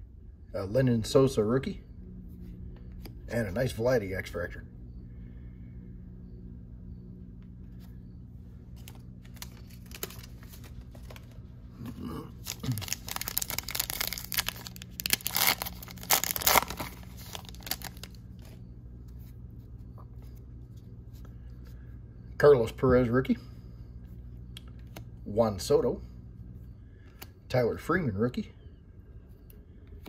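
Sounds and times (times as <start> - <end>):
foil wrapper tearing and crinkling: 8.8 - 11.3, 12.4 - 18.2.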